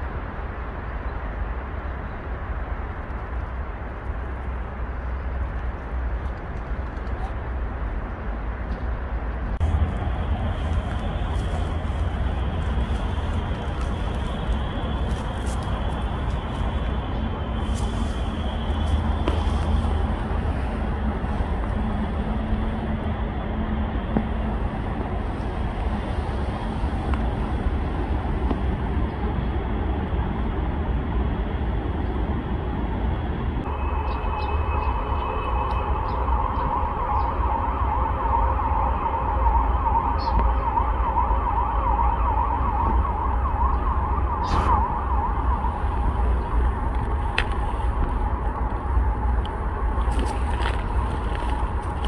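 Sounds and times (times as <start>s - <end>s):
steady low rumble: 0.0s - 52.0s
emergency vehicle siren wailing: 33.6s - 52.0s.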